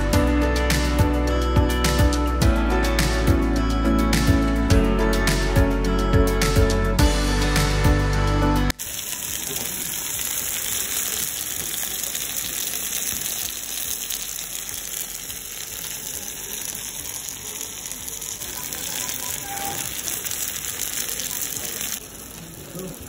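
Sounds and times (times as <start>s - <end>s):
beef sizzling on hot plate: 8.7s - 23.0s.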